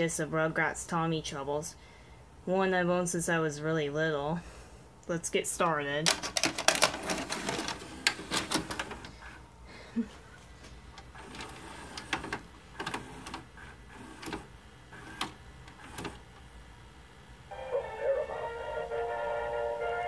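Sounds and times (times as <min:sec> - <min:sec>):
vcr mechanical clicks and clunks: 0:06.0 - 0:09.4, 0:10.9 - 0:16.5.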